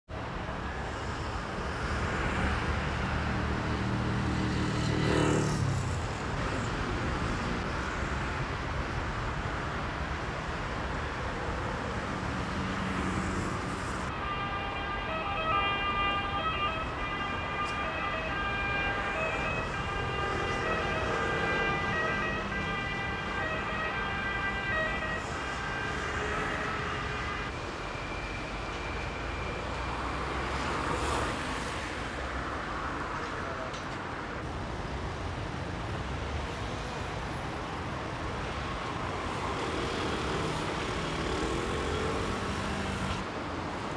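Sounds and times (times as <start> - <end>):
road traffic: 0.1 - 43.9
siren: 14.1 - 32.1.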